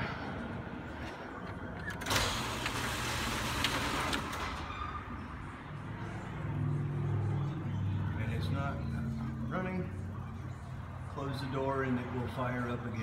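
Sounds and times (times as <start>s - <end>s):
bay door opener humming: 1.5s - 4.7s.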